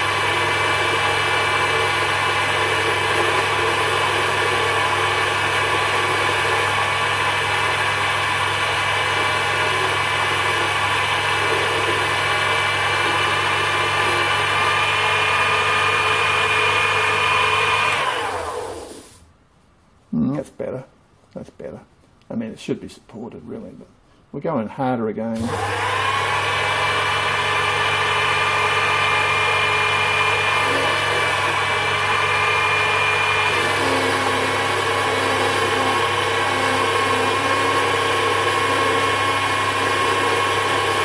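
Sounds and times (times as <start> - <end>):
lathe motor whine and hum: 0.0 - 19.2, 25.4 - 41.0
lathe winding down: 0.0 - 19.2, 25.4 - 41.0.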